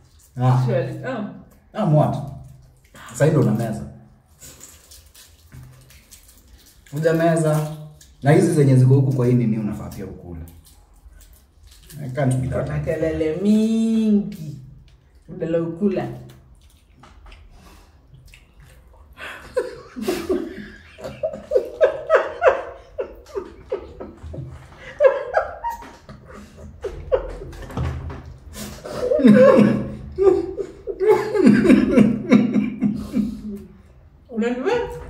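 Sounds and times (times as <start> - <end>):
people laughing: 19.3 - 27.8, 28.9 - 33.5.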